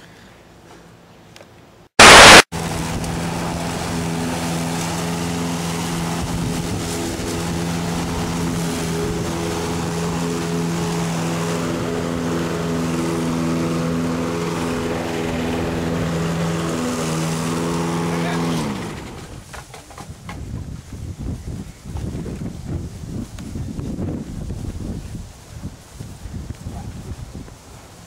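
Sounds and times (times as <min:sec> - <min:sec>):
lawn mower engine running: 0:02.0 - 0:20.0.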